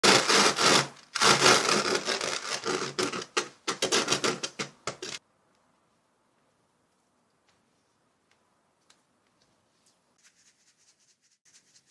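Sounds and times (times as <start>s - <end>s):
fingers rubbing glitter: 10.2s - 11.9s.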